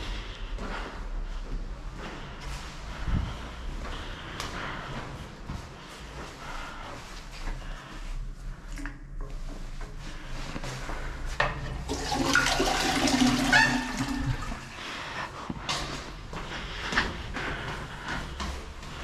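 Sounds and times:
toilet flushing: 11.6 - 14.9.

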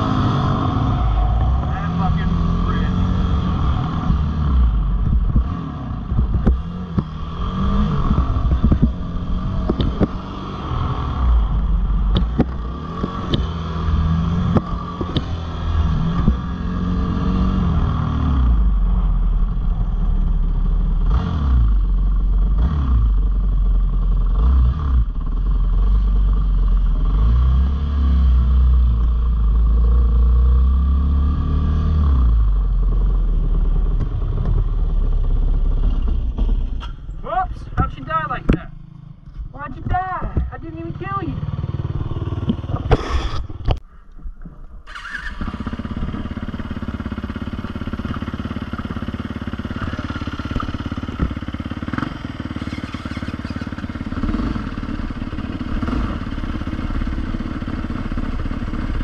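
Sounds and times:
dirt bike engine revving: 0.0 - 18.7, 40.5 - 43.6, 44.9 - 59.0.

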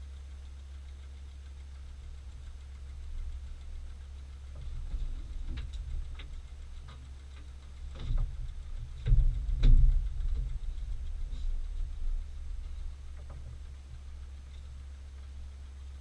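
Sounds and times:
steady low rumble: 0.0 - 16.0
knocks and creaks of wooden platform: 4.6 - 12.0, 13.1 - 14.0.

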